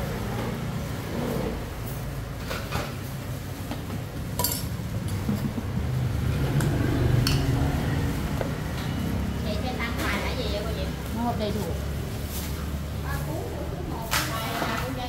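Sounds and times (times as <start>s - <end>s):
utensils and dishes clinking: 4.0s - 7.8s.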